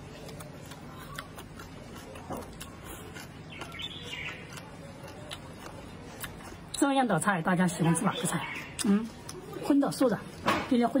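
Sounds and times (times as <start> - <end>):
person chewing food: 0.0 - 6.9, 7.8 - 10.4
wet mouth clicks: 0.1 - 6.8, 8.7 - 9.5.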